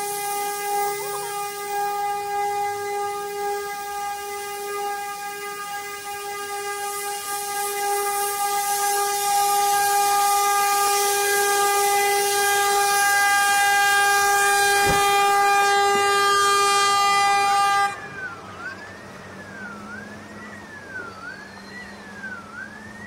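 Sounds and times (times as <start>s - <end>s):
ship's horn blast: 0.0s - 18.4s
siren wailing: 0.0s - 23.0s
wind: 0.0s - 23.0s.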